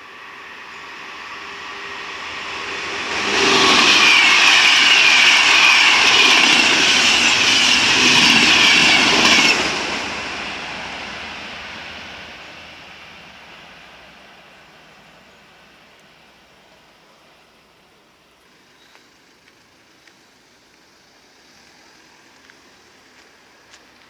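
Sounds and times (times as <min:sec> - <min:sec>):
train passing at speed: 0:00.0 - 0:24.0
wheels rattling on rails: 0:00.2 - 0:14.3.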